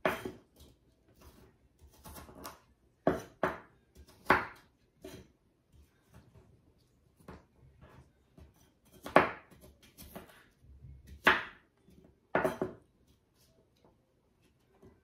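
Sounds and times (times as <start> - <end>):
knife chopping apple on board: 0.0 - 5.3, 7.2 - 11.7, 12.3 - 12.8.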